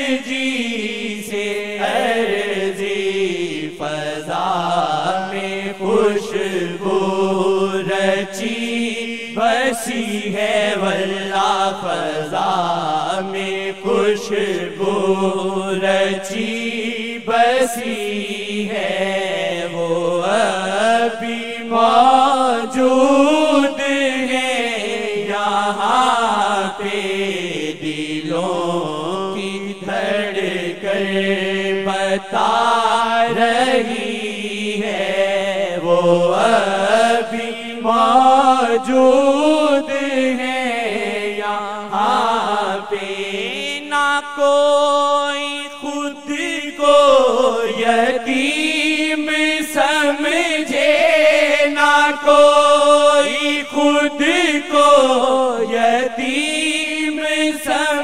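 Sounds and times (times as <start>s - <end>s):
person chanting unaccompanied: 0.0s - 58.0s.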